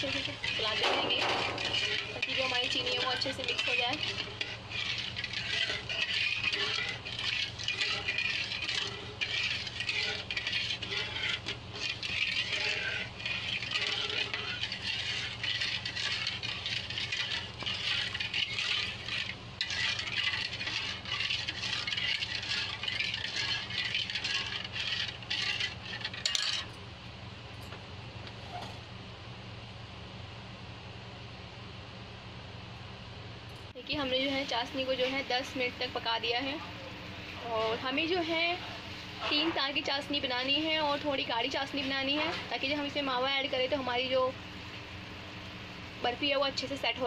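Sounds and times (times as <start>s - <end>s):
metal ladle scraping a pan: 0.0s - 26.8s, 39.0s - 43.1s
steady low hum: 0.0s - 47.0s.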